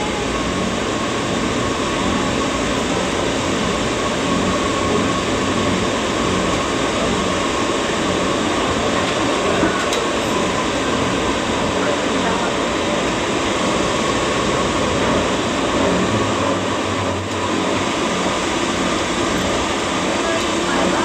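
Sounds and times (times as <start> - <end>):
light-rail car rumble and hiss: 0.0 - 21.0.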